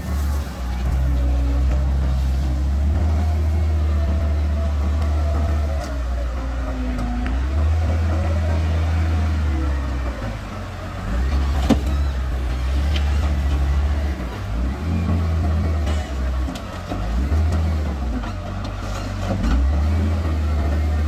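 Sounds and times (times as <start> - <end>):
diesel engine under load: 0.0 - 21.0.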